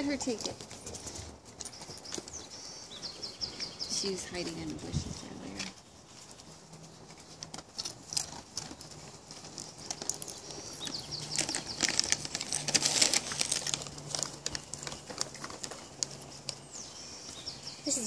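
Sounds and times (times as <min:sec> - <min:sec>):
plastic bag crinkling: 0:03.1 - 0:18.0.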